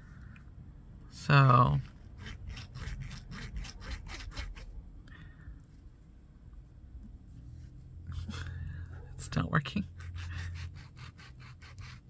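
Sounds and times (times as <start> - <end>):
glue tip rubbing on card: 2.2 - 4.7, 10.1 - 12.0.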